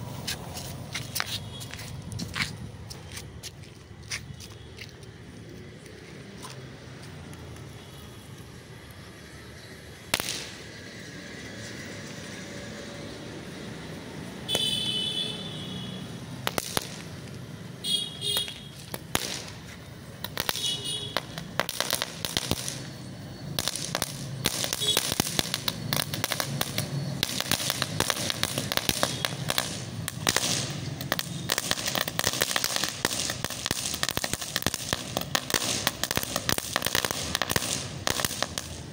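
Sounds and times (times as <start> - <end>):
firework crack: 9.9 - 10.9, 15.9 - 38.9
firework pops: 10.2 - 10.6, 16.4 - 17.4, 18.3 - 23.0, 23.6 - 38.8.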